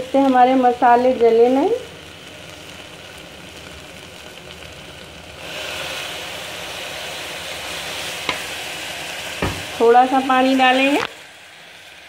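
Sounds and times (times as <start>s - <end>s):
masala sizzling in a pot: 0.0s - 12.0s.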